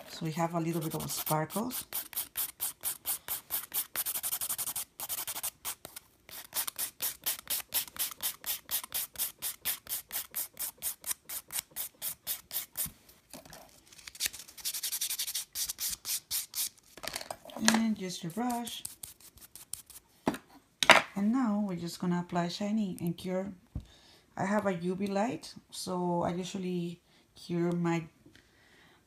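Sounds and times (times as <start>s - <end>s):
nail buffer scratching nail: 0.5s - 12.9s, 18.3s - 20.0s.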